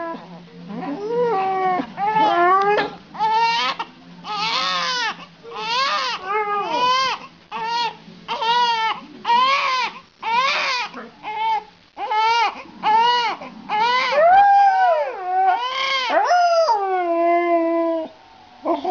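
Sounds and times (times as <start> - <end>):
dog howling: 0.0 - 7.1, 12.2 - 18.9
baby crying: 0.8 - 14.2, 15.1 - 16.2.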